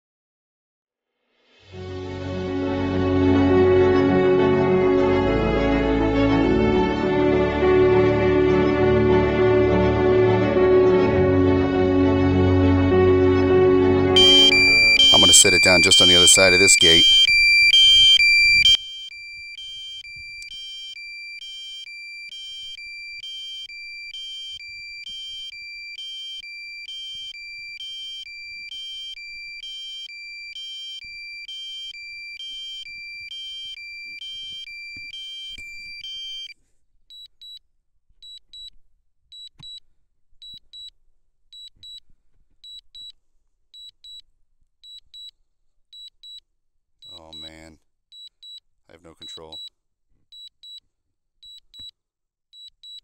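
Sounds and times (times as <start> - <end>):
higher double beeps: 14.2 - 36.5
low battery alarm beeps: 14.2 - 36.6, 47.0 - 47.6, 49.2 - 49.7.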